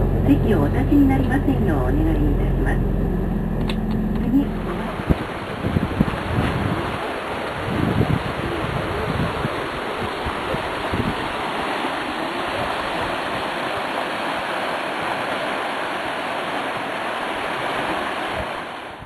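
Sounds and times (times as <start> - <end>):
low bumps: 0.0 - 6.9
river water rushing: 0.0 - 19.0.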